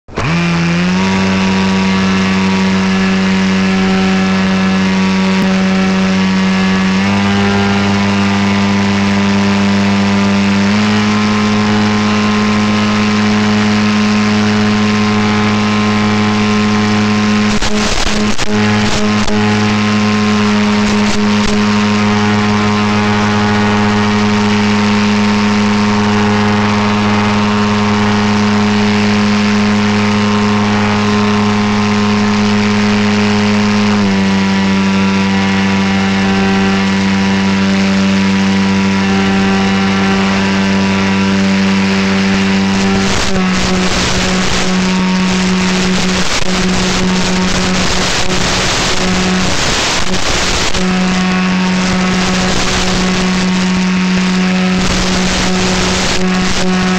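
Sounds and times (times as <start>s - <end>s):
electric motor and propeller drone: 0.0s - 56.9s
crackling radio static: 11.5s - 37.4s, 38.4s - 56.9s.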